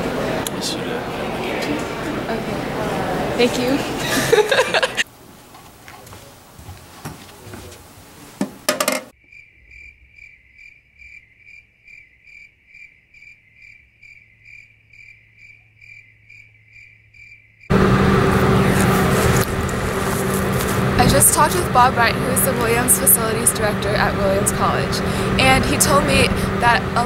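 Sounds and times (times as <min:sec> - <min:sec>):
loud outdoor background noise: 0:00.0 - 0:09.1, 0:17.7 - 0:27.0
crickets chirping: 0:04.0 - 0:23.8
indoor knocks: 0:08.4 - 0:09.1.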